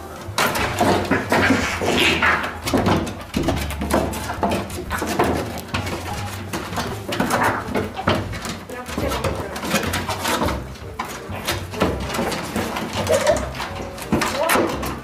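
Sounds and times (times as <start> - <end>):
scuffling on wooden boards: 0.0 - 15.0.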